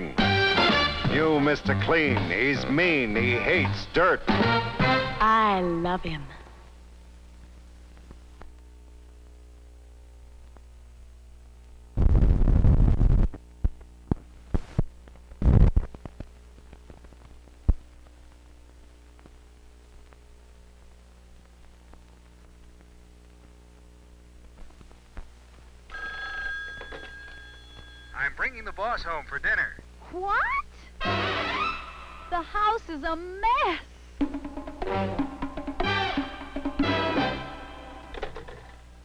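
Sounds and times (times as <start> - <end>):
electrical hum: 0.0 - 39.0
telephone bell ringing: 25.9 - 28.4.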